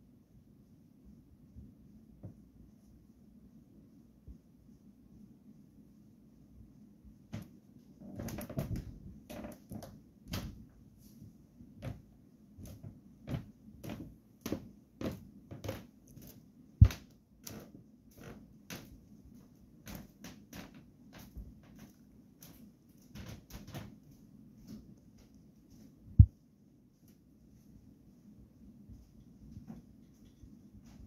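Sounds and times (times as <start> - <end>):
ceiling fan humming: 0.0 - 31.0.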